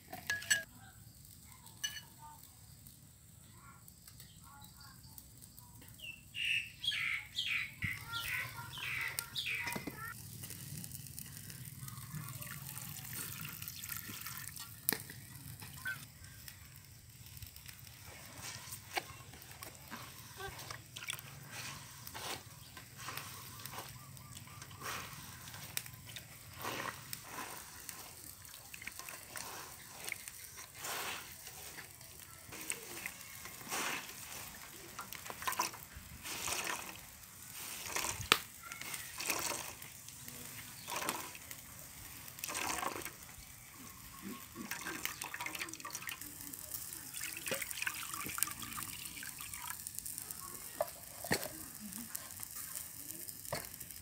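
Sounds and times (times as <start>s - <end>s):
liquid pouring into a bowl: 12.3s - 15.2s, 42.4s - 43.2s, 44.6s - 50.0s
liquid dripping: 42.4s - 43.2s, 44.5s - 50.1s.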